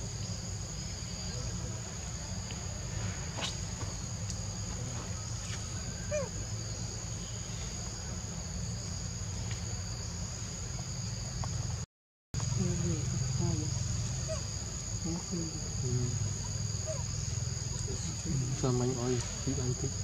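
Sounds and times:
insects droning: 0.0s - 20.0s
low steady rumble: 12.4s - 20.0s.

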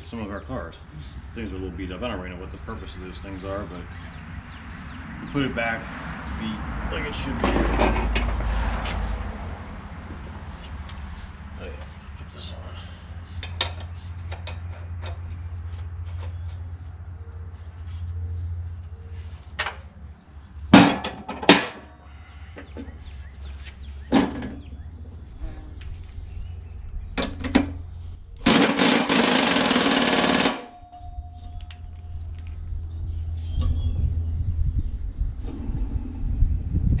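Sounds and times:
steady low hum: 9.5s - 37.0s
loud rattling burst: 28.4s - 30.8s.

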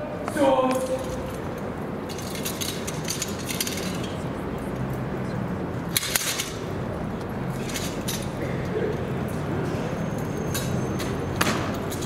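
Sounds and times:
metallic jingling and clinking: 0.8s - 4.2s, 7.5s - 8.4s.

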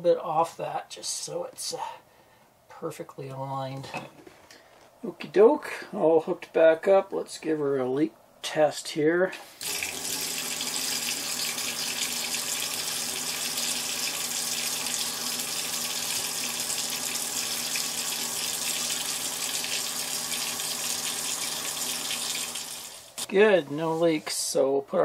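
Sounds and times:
water pump humming: 9.6s - 24.4s.

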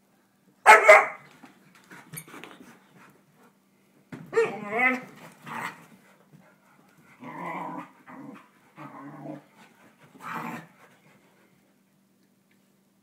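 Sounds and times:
dog grumbling vocalisations: 7.2s - 9.5s.

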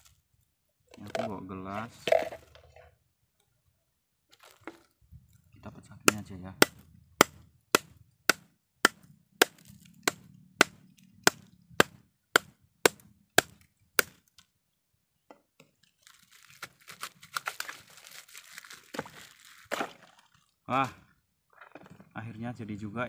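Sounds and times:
plastic bag crinkling: 15.8s - 20.1s
broken ice crunching: 15.8s - 20.5s.

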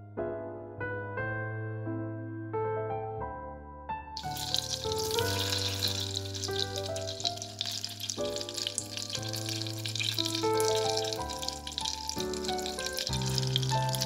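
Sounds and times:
background music with held notes: 0.0s - 14.0s
spatula stirring in pan: 4.2s - 14.0s
vegetables sizzling in oil: 4.2s - 14.0s.

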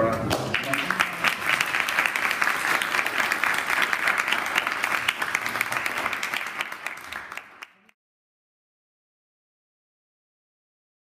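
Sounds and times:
audience applauding: 0.1s - 8.0s.

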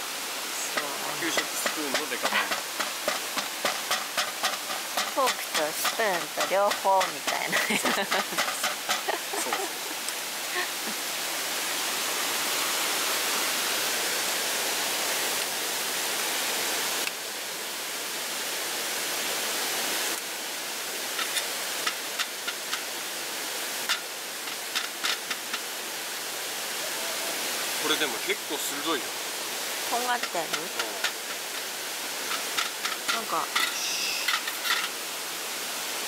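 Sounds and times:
stream rushing: 0.0s - 36.0s
fork tapping cutting board: 1.4s - 9.6s, 30.2s - 31.2s.

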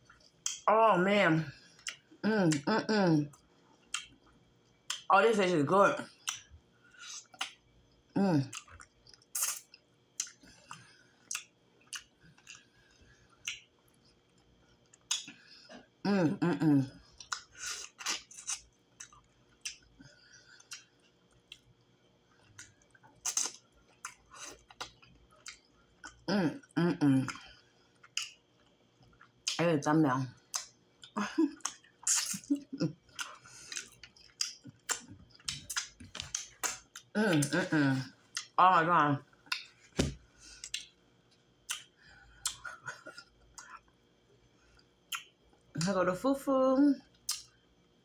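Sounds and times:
lip smacks and clicks: 6.2s - 7.6s, 22.6s - 25.6s, 40.6s - 41.0s, 41.7s - 42.8s, 47.3s - 47.5s
wet chewing: 17.1s - 26.2s, 30.4s - 37.6s.

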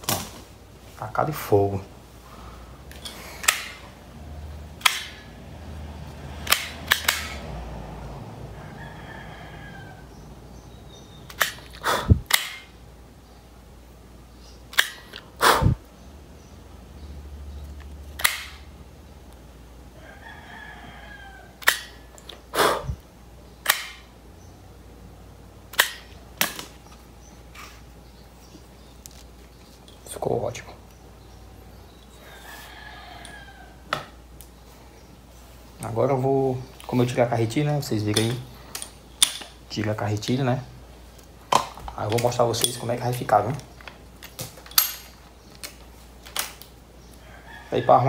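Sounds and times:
rooster crowing: 8.2s - 10.6s, 19.9s - 22.1s, 32.1s - 34.2s, 47.2s - 48.0s.

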